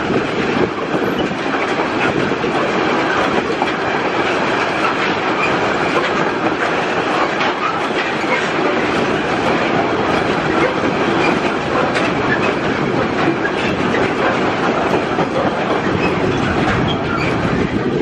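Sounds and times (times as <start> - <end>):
freight train wagons rumbling: 0.0 - 18.0
wheels clicking over rail joints: 0.0 - 18.0.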